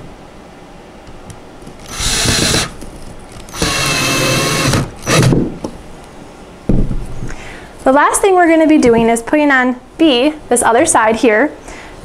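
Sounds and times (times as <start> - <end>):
cordless drill driving screw into wood: 1.8 - 2.8, 3.4 - 5.4.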